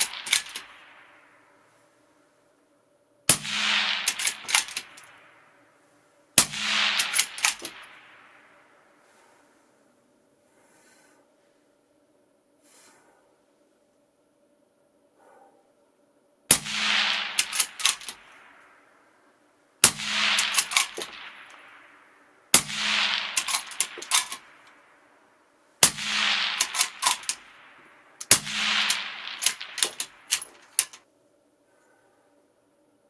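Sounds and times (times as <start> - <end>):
rifle shots: 0.0 - 1.7, 3.3 - 9.4, 16.5 - 19.2, 19.8 - 25.2, 25.8 - 31.0
sharp cracks: 0.0 - 1.9, 3.3 - 9.6, 16.5 - 31.1
ringing echo in shed: 0.0 - 14.2, 16.5 - 32.5.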